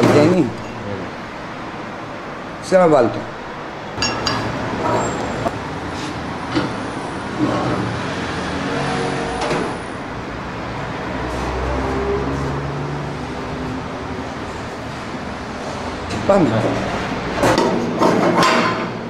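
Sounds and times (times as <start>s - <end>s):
light metal knocks and clinks: 4.0s - 4.6s.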